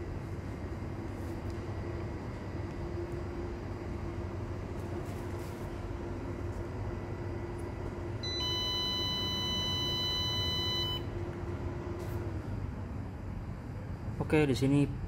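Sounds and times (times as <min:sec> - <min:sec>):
steady low hum: 0:00.0 - 0:15.0
inverter buzzer long beep: 0:08.2 - 0:11.2.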